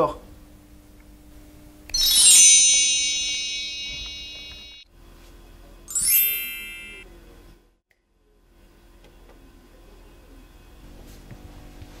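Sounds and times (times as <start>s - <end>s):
chime glissando: 1.9s - 4.8s, 5.9s - 7.1s.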